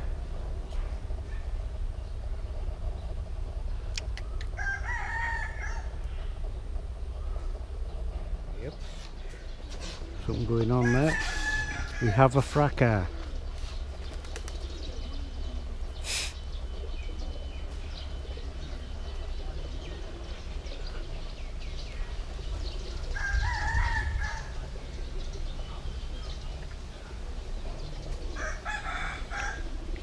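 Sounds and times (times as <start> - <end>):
low rumble: 0.0 - 10.8
small birds chirping: 0.0 - 30.0
rooster crowing: 4.5 - 6.0, 10.8 - 12.3, 23.1 - 24.6, 28.4 - 29.8.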